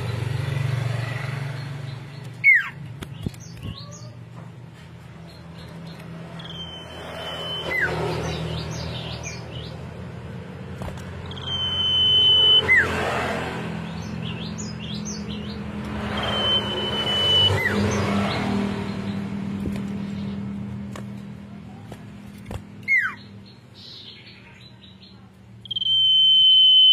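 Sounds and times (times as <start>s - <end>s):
bird singing whistled phrases: 6.4s - 8.0s, 11.3s - 12.8s, 16.2s - 17.8s, 25.6s - 26.9s.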